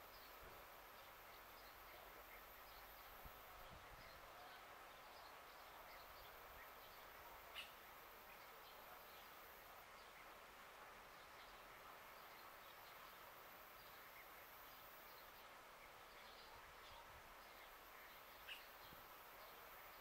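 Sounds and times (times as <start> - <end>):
distant bird chirps: 11.3 - 20.0.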